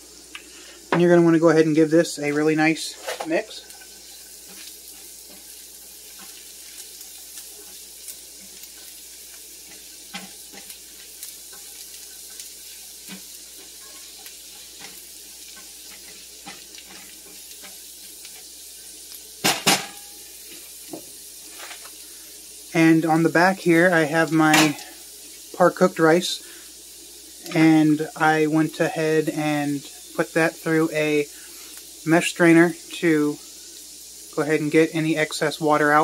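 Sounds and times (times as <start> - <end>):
vegetables sizzling in butter: 0.0 - 36.0
spatula scraping and clicking on pan: 3.0 - 18.6.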